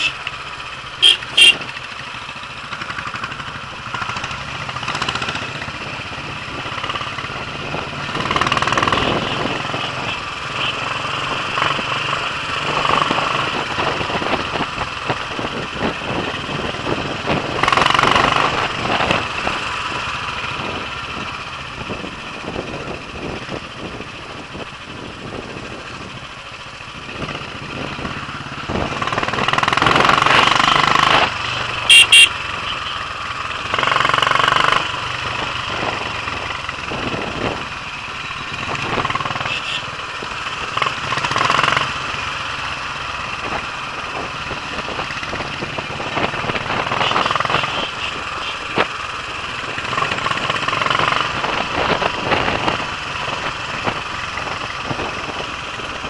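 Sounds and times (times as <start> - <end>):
motorcycle engine running: 0.0 - 56.0
wind rushing over microphone: 12.6 - 31.9, 34.8 - 39.2, 43.2 - 48.9, 49.5 - 56.0
short high beeps: 31.9 - 33.0.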